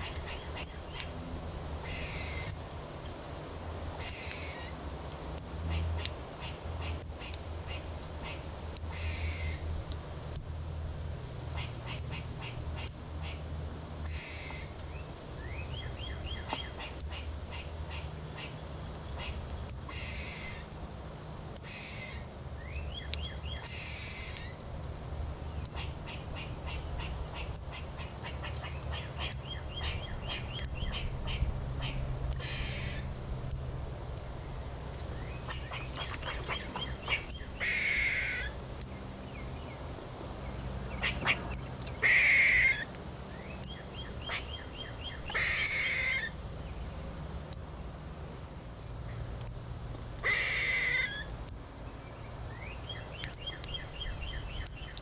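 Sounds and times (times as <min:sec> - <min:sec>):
harsh raspy bird calls: 0:00.0 - 0:01.1, 0:01.8 - 0:02.6, 0:04.0 - 0:04.8, 0:05.4 - 0:09.6, 0:11.5 - 0:14.7, 0:16.0 - 0:18.6, 0:19.2 - 0:20.8, 0:21.6 - 0:22.3, 0:23.2 - 0:24.6, 0:25.6 - 0:33.6, 0:35.2 - 0:39.0, 0:40.9 - 0:42.9, 0:43.6 - 0:46.4, 0:50.2 - 0:51.3.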